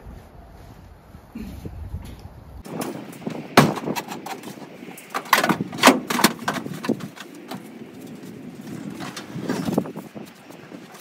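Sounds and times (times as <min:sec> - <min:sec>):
lawn tractor thudding on metal floor: 0:02.7 - 0:07.6.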